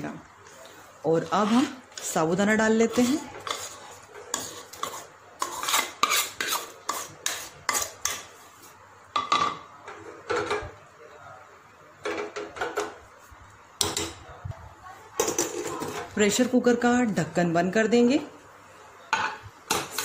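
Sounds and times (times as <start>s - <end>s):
steel spoon scraping a pot: 1.2s - 8.5s.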